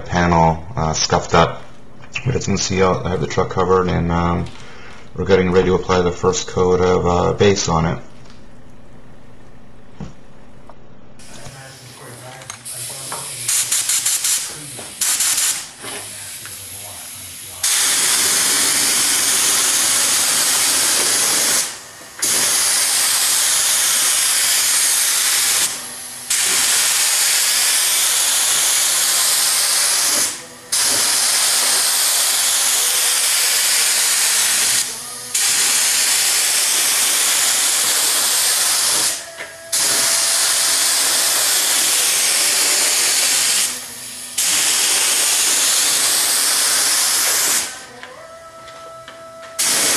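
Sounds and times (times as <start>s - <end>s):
paint spray gun hissing: 11.2s - 48.0s, 49.6s - 49.9s.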